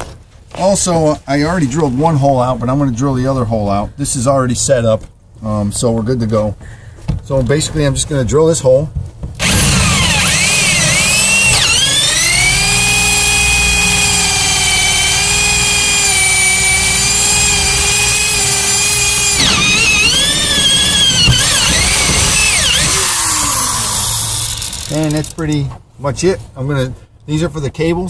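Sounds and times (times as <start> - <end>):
electric drill whining: 9.4 - 25.4.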